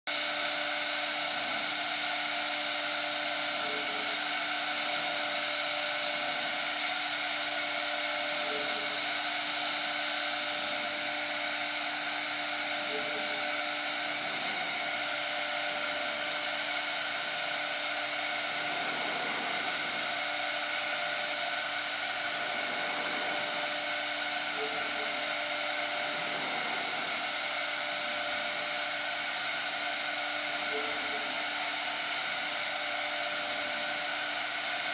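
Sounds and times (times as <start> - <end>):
machinery whirring: 0.1 - 34.9.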